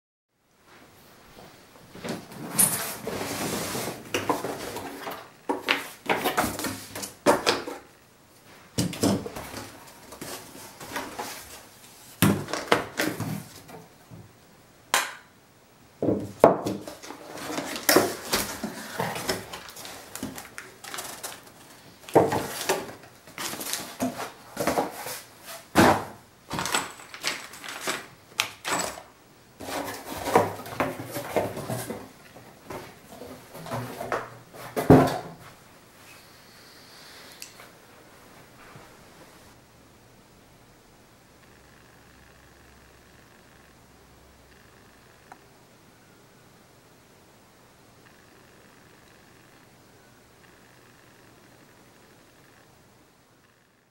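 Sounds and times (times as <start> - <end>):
cardboard rustling and scraping: 2.0 - 7.9, 8.8 - 13.8, 16.6 - 28.1, 29.6 - 35.6.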